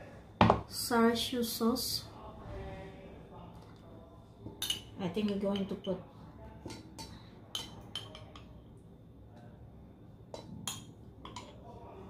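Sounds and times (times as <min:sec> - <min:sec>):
metal spoon clinking on jar and bowl: 0:04.6 - 0:06.0, 0:06.7 - 0:08.5, 0:10.3 - 0:11.6.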